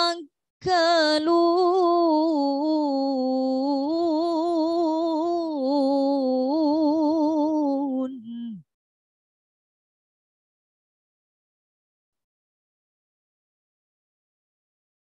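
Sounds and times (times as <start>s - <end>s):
woman reciting melodically: 0.0s - 8.7s.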